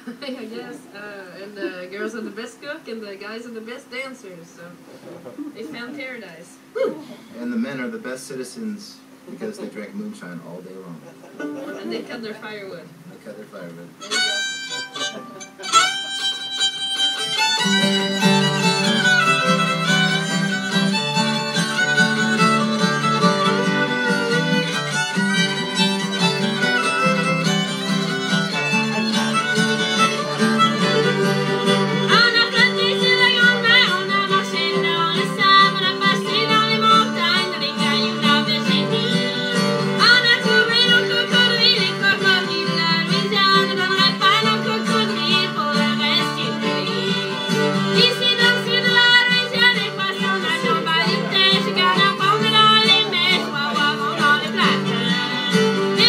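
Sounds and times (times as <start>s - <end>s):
strummed acoustic guitar: 13.9s - 56.0s
fiddles sliding between notes: 14.0s - 56.0s.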